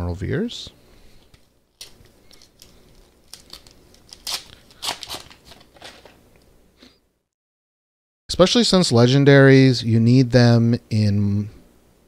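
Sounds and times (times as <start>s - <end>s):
foil wrapper crinkling: 1.2s - 6.2s.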